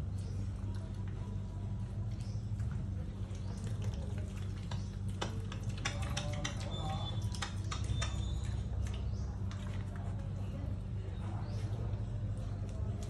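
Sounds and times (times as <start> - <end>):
pig chewing and smacking: 0.0 - 13.0
steady low hum: 0.0 - 13.0
wet clicks and crunches: 0.1 - 10.5.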